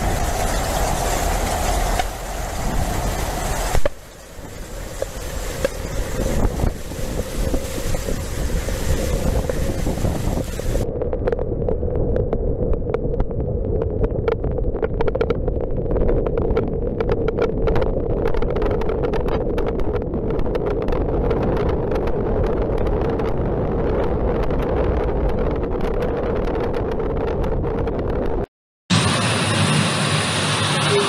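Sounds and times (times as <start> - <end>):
heavy rain patter: 0.0 - 10.9
wind buffeting microphone: 0.0 - 28.5.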